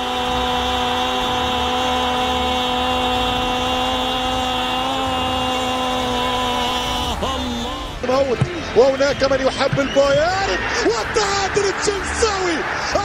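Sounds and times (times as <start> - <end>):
commentator's long drawn-out cry: 0.0 - 8.9
crowd noise: 0.0 - 13.0.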